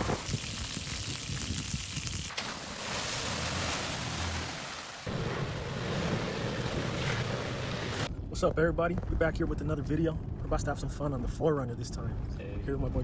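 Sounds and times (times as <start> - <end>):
off-road trucks driving: 2.4 - 8.1.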